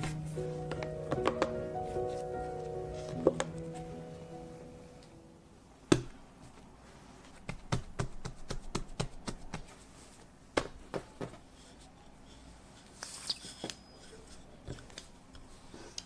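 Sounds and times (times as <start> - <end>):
hand patting bread dough: 7.3 - 9.9.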